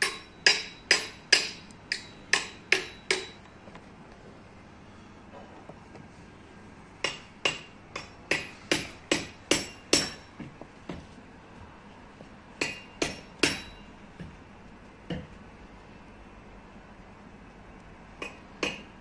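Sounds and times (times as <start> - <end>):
sharp knocks with ringing tone: 0.0 - 3.5, 7.0 - 11.0, 12.6 - 14.3, 18.2 - 19.0.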